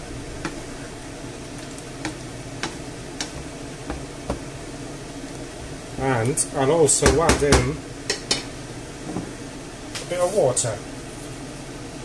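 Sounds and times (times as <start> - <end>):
wooden spoon stirring: 0.0 - 6.5
sauce sizzling in frying pan: 0.0 - 12.0.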